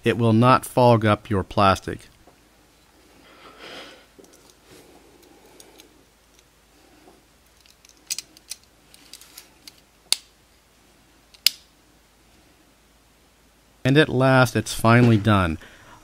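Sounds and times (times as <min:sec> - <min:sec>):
toy car parts clicking together: 0:07.6 - 0:10.3.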